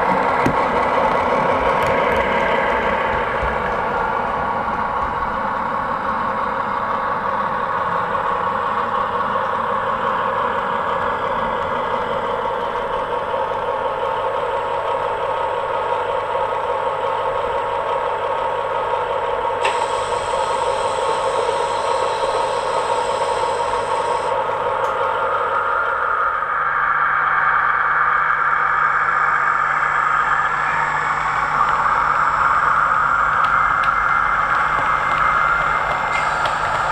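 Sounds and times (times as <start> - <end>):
model train diesel engine: 0.0 - 36.9
click: 19.6 - 19.9.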